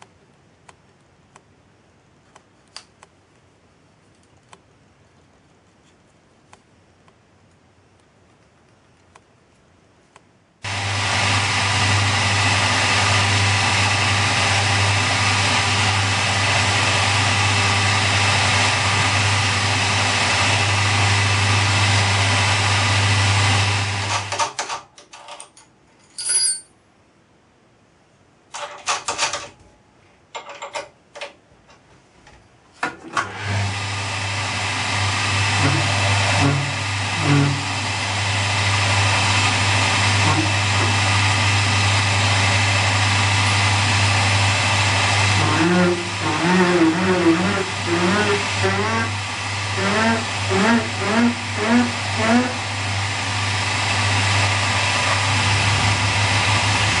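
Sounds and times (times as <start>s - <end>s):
milling machine motor humming: 10.6s - 24.4s, 33.2s - 57.0s
bit cutting metal: 43.5s - 57.0s.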